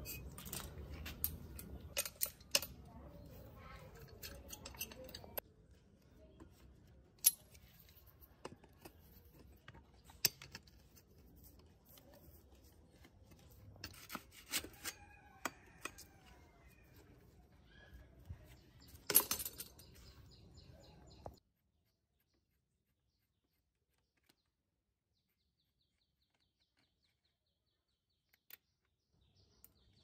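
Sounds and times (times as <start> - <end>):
metal clicks of bicycle parts: 0.0 - 2.9, 3.9 - 5.4, 10.0 - 10.9.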